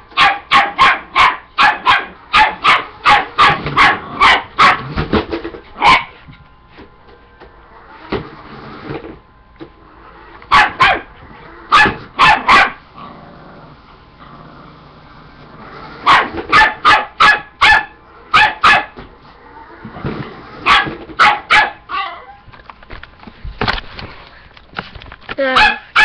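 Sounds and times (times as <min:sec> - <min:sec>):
dog barking: 0:00.2 - 0:04.9, 0:05.8 - 0:06.1, 0:10.5 - 0:11.1, 0:11.7 - 0:12.8, 0:16.0 - 0:19.0, 0:20.6 - 0:22.2, 0:25.5 - 0:26.0.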